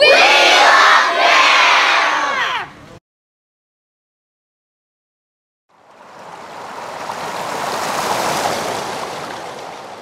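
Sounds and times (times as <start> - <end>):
rushing surf-like whoosh: 5.8 - 10.0.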